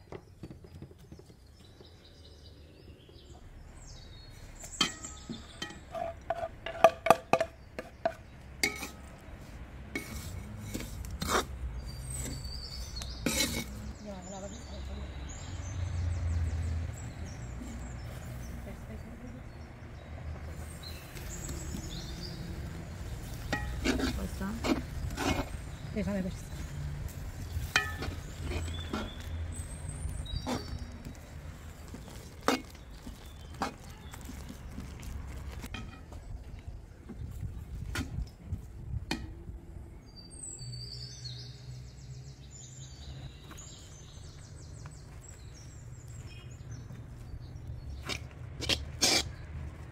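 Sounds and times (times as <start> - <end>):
metal ladle clinking on pot: 4.8 - 9.0, 27.7 - 28.2
ladle scraping dry mixture: 7.9 - 14.0, 20.6 - 35.8, 48.0 - 49.9
spatula stirring grain: 9.9 - 11.5, 13.2 - 13.8, 22.9 - 29.7
bird chirps: 40.0 - 48.2.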